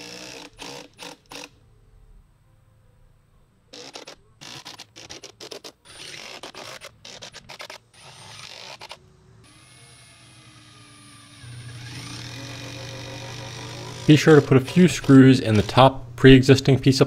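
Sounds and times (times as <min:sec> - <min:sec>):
cordless drill driving screws: 0:00.0 - 0:01.5, 0:03.8 - 0:15.9
quiet steady hum: 0:01.5 - 0:04.6, 0:08.9 - 0:17.0.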